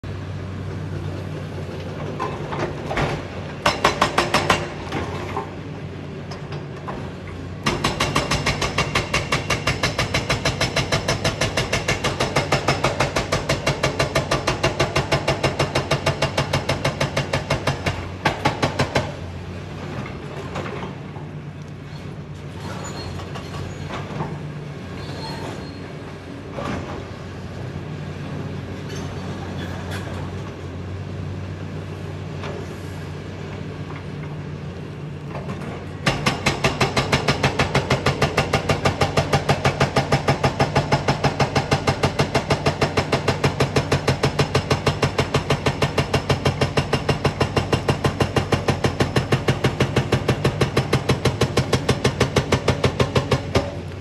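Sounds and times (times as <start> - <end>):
hydraulic breaker hammering rock: 2.2 - 5.2, 7.6 - 19.2, 36.0 - 53.9.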